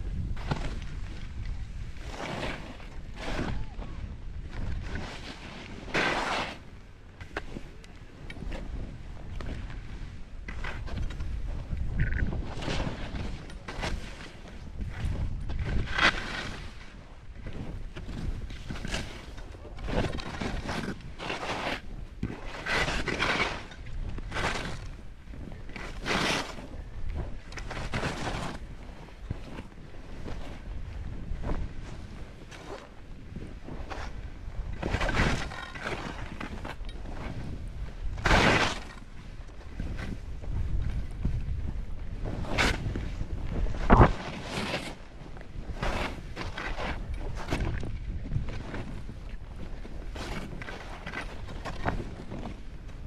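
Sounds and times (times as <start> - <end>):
wind rumble on microphone: 0.0 - 53.0
skis hissing through snow: 4.9 - 6.7.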